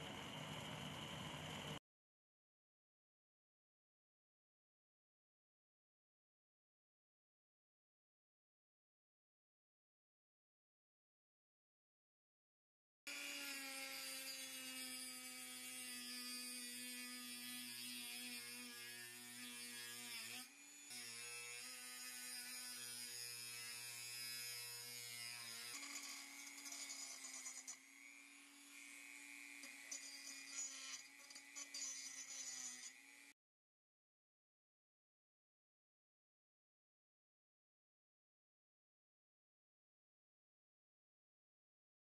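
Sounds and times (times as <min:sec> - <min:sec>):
rotary tool cutting steel bolt: 0:13.1 - 0:33.4
grinding stone grinding metal: 0:13.5 - 0:33.4.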